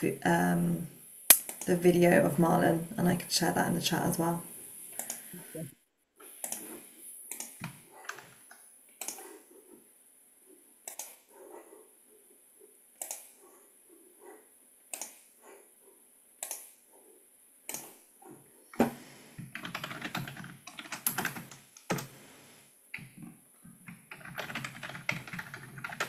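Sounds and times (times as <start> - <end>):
keyboard typing: 6.4 - 8.4, 9.0 - 9.4, 10.9 - 11.2, 13.0 - 13.4, 14.9 - 15.2, 18.8 - 22.1, 23.0 - 26.0.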